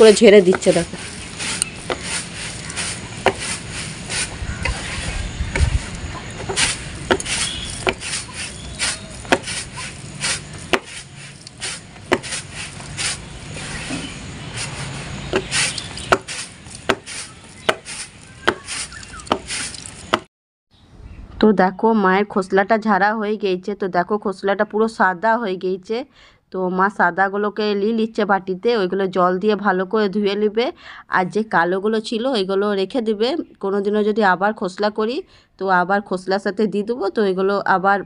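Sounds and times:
seeds sliding across plastic: 0.0s - 20.2s.

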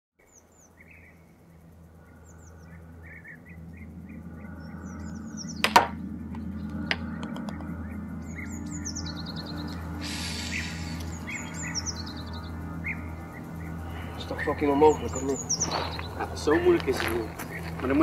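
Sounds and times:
low steady hum: 0.2s - 18.0s
small birds chirping: 0.2s - 18.0s
putter striking golf ball: 5.6s - 6.0s, 6.9s - 7.7s.

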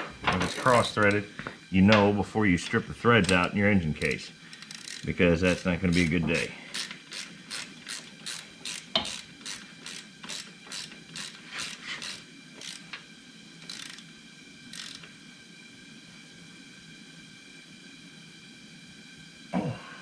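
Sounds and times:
socket ratchet clicking: 4.5s - 13.0s, 13.6s - 14.1s, 14.7s - 15.1s.

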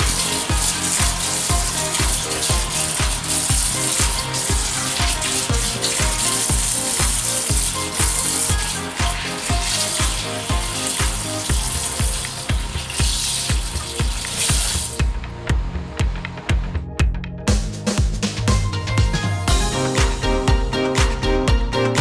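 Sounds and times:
tap water running in sink: 0.0s - 15.2s
background music with steady beat: 0.0s - 22.0s.

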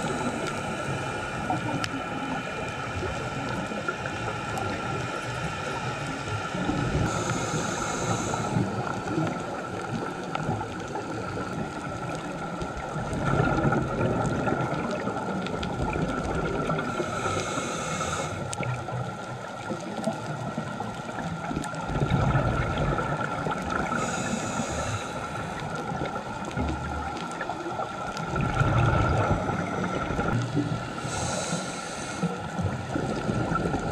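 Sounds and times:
steady hum: 0.0s - 9.3s
gurgle of exhaled bubbles: 6.6s - 17.3s, 18.4s - 31.5s, 32.5s - 33.9s
regulator hissing inhalations: 7.0s - 9.2s, 16.9s - 18.5s, 23.9s - 25.7s, 30.8s - 32.6s.

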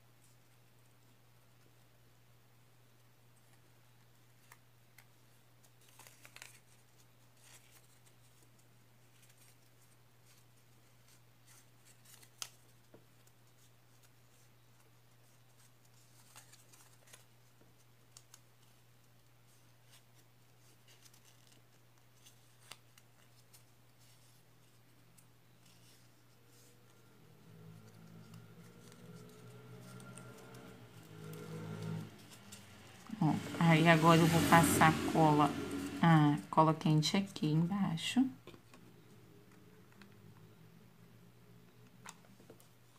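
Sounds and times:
paper rustling and crinkling: 3.4s - 33.0s.

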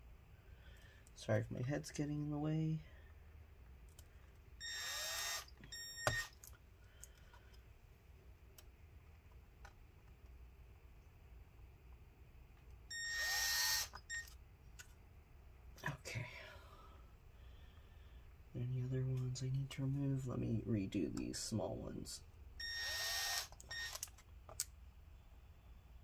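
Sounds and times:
small drill whirring: 4.6s - 6.4s, 12.9s - 14.4s, 22.6s - 24.1s.

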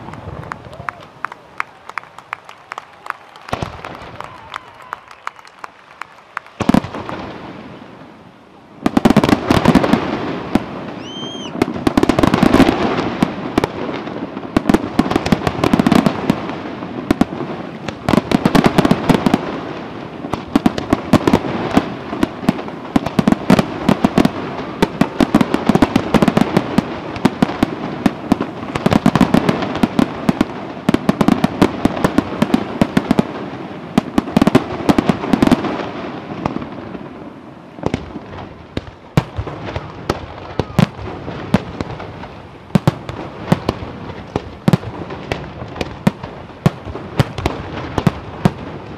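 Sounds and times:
fireworks bursting and popping: 0.0s - 48.9s.

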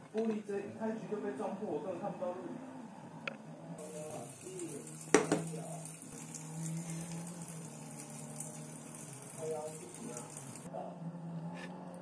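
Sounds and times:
cooking hiss from pan: 3.8s - 10.7s
cookware knocking: 5.1s - 5.5s.

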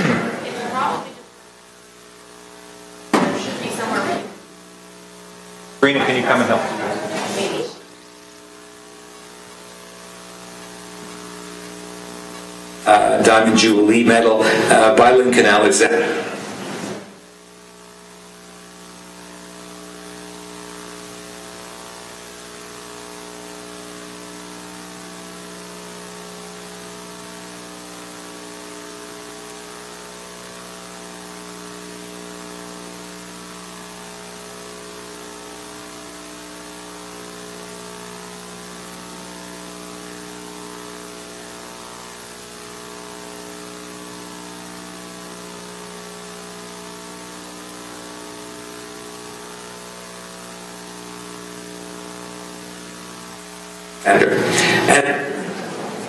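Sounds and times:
constant hiss: 0.0s - 27.9s, 51.8s - 56.0s
electrical mains hum: 0.0s - 56.0s.

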